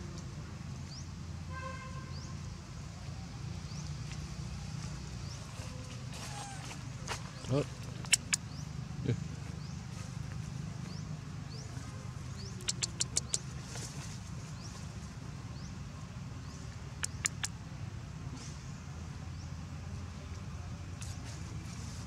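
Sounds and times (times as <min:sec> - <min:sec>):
sharp clicks: 0:08.0 - 0:08.4, 0:12.6 - 0:13.4, 0:17.0 - 0:17.5
small high chirp: 0:08.0 - 0:08.6, 0:12.4 - 0:13.4, 0:17.0 - 0:17.6.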